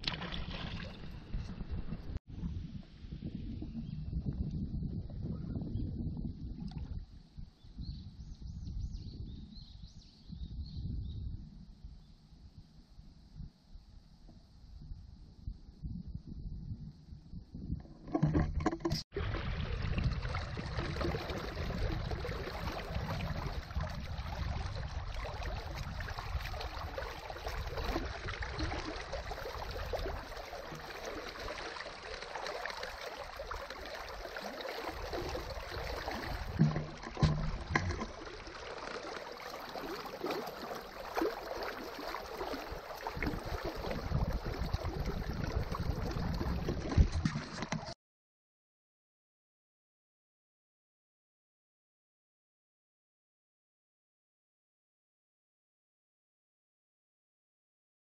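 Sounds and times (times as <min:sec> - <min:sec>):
water lapping against boat: 0:17.8 - 0:48.0.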